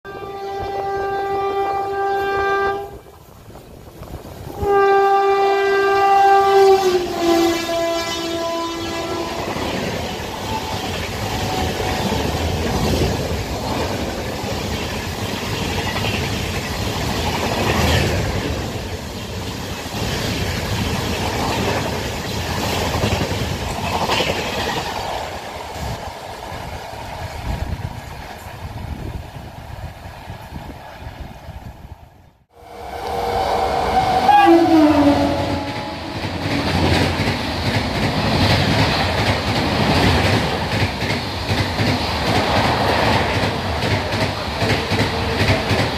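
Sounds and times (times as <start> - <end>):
locomotive horn blasts: 0.1 - 3.1, 4.5 - 9.7, 32.5 - 36.3
train coaches rushing by: 0.1 - 45.9.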